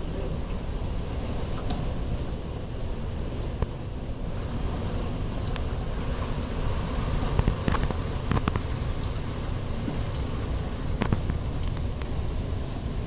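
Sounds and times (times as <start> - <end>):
heavy rain falling: 0.0 - 13.0
sharp taps of raindrops: 1.3 - 1.9, 3.0 - 3.9, 5.5 - 6.6, 7.2 - 12.5.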